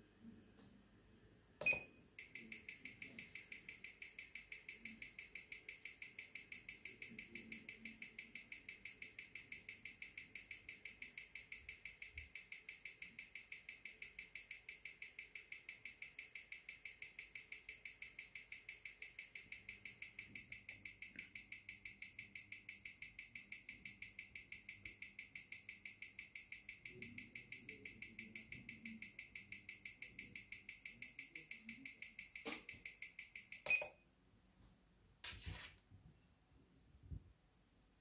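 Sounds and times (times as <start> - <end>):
watch ticking: 1.7 - 33.9.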